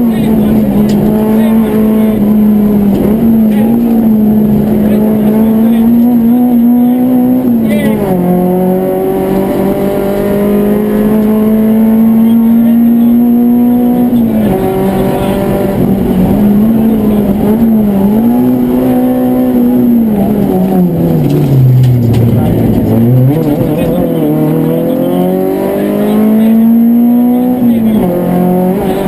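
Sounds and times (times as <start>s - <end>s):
rally car engine accelerating: 0.0s - 29.0s.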